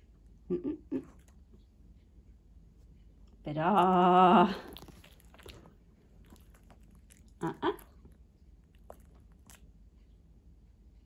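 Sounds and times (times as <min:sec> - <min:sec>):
puppy chewing a treat: 0:03.3 - 0:10.2.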